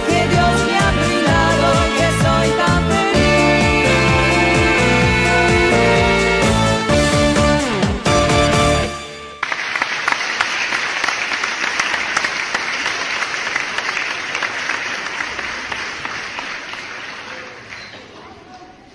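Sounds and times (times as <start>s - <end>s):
audience applause: 9.4s - 18.2s.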